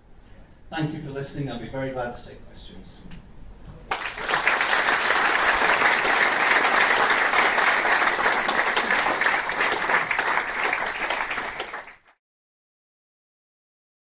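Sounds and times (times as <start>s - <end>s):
audience applauding: 3.9s - 12.2s.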